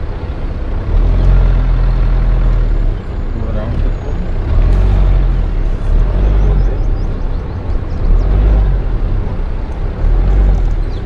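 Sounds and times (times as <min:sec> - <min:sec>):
vehicle engine low rumble: 0:00.0 - 0:11.0.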